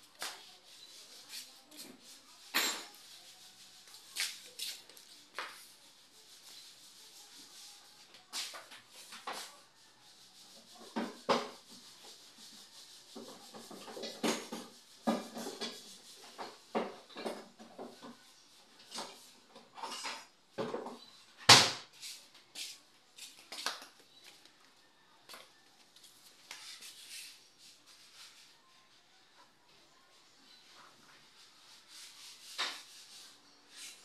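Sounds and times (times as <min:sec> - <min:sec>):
hand tools clinking and scraping: 0:02.4 - 0:03.0, 0:18.8 - 0:20.9.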